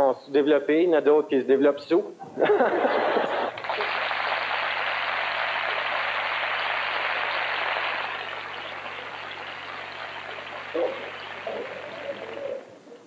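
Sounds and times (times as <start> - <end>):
audience applauding: 3.4 - 12.7.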